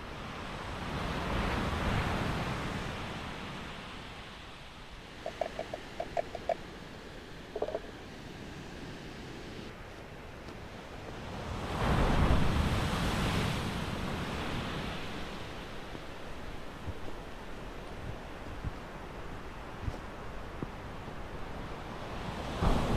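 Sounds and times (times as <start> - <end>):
wave breaking and washing in: 5.0 - 9.7, 11.1 - 17.6, 21.4 - 22.9.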